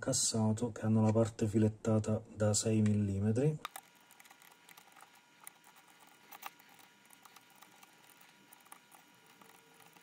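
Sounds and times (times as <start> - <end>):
allen key clicking and scratching: 3.7 - 10.0
sharp ticks: 3.7 - 10.0.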